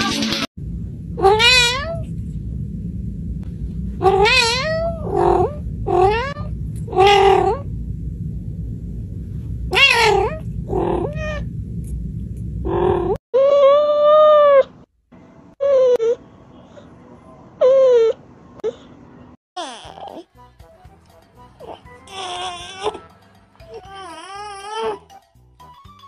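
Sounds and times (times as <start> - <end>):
low background hum: 0.6 - 19.9
cat meowing: 1.2 - 2.0, 4.0 - 7.6, 9.7 - 11.5.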